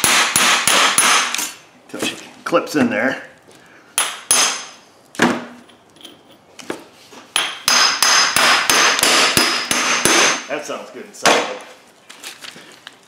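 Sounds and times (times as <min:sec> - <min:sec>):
hammer striking metal nut: 0:04.0 - 0:04.7, 0:07.4 - 0:10.5.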